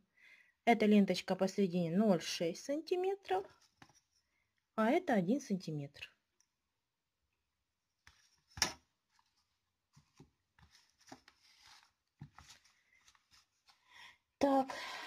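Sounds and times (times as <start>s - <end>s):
soft rustles: 8.1s - 13.9s.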